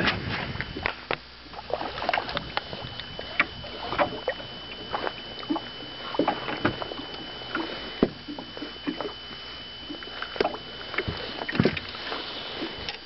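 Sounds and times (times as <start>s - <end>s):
waves slapping metal boat: 0.0s - 13.0s.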